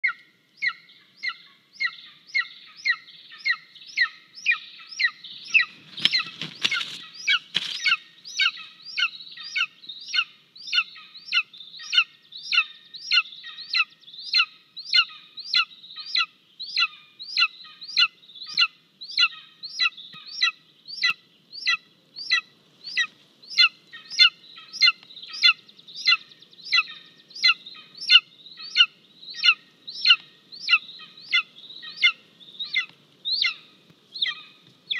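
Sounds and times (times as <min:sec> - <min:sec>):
eaglet begging calls: 0:00.0 - 0:34.9
wing flapping and rustling: 0:05.4 - 0:08.0.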